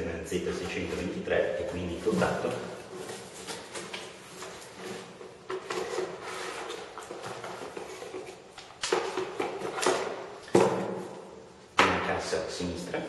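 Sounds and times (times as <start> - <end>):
cardboard packaging rustling: 1.8 - 10.2.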